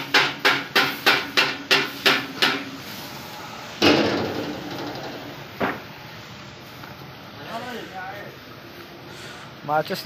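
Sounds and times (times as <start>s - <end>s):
metal being hammered: 0.0s - 2.7s, 3.8s - 5.4s
sharp knock: 3.8s - 5.8s.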